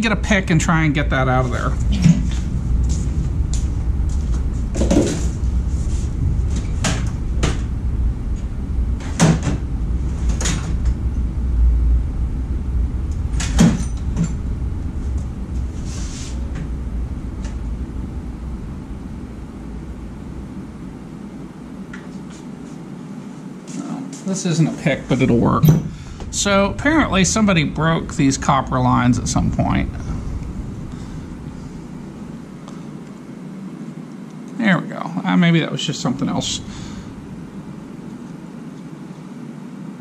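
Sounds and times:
low hum: 0.0 - 40.0.

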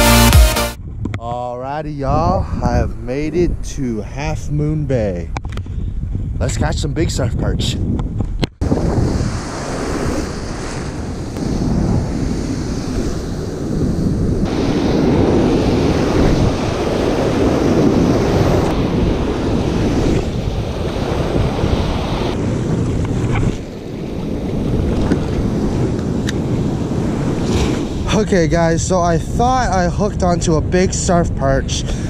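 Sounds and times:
wind buffeting microphone: 0.8 - 32.0
ocean surf breaking: 8.6 - 28.5.

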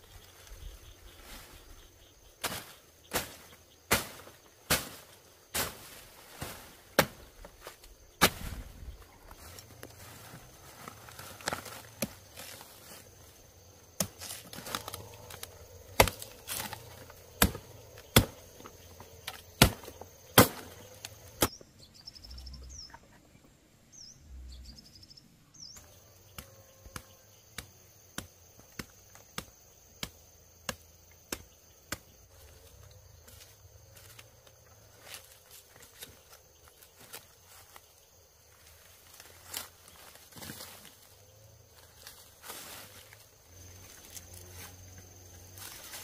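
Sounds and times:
blade chopping: 15.9 - 16.8, 17.4 - 18.7.

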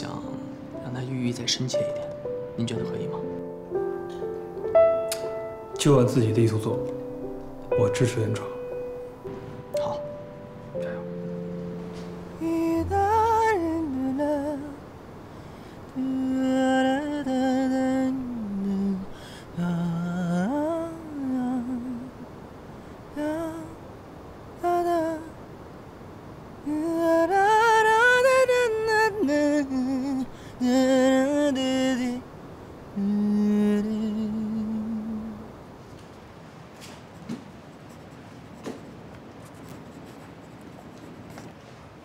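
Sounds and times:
man humming a melody: 8.5 - 14.8, 15.9 - 22.2, 23.2 - 23.8, 26.6 - 32.2, 33.0 - 35.5.

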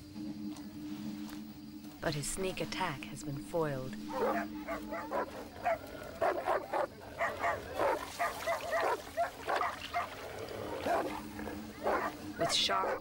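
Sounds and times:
dogs barking rapidly: 4.1 - 13.0.

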